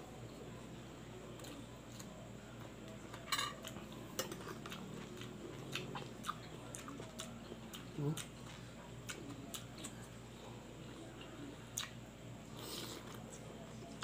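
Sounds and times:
metal spoon clinking on a plate: 0:03.3 - 0:03.6.

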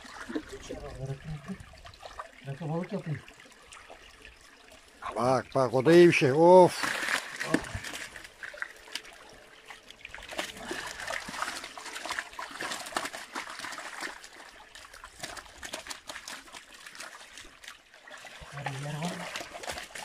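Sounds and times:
water trickling: 0:00.0 - 0:20.0
fish flapping and splashing: 0:06.7 - 0:20.0.

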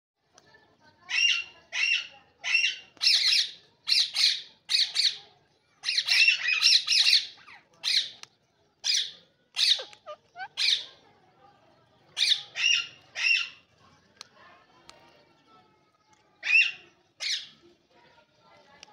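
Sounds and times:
parakeets squawking: 0:05.8 - 0:08.2, 0:08.9 - 0:11.0, 0:12.2 - 0:13.6.

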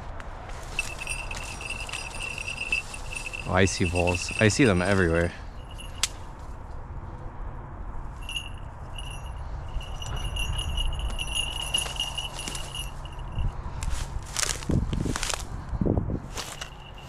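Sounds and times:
bells jingling: 0:00.6 - 0:06.1, 0:08.2 - 0:13.6, 0:16.4 - 0:17.0.

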